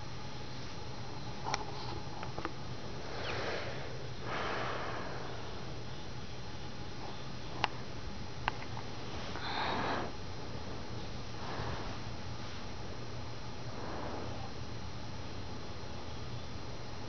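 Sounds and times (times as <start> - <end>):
sniffs: 3.0 - 5.7, 9.1 - 10.2, 11.4 - 12.7, 13.7 - 14.6
person breathing through nose: 3.0 - 5.8, 9.3 - 10.2, 11.4 - 12.2, 13.6 - 14.6.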